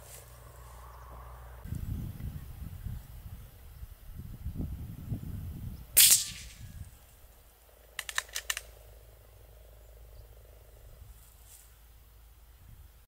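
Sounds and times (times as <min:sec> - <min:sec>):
rifle shot: 0:06.0 - 0:06.7
rifle bolt clicking: 0:08.0 - 0:08.7.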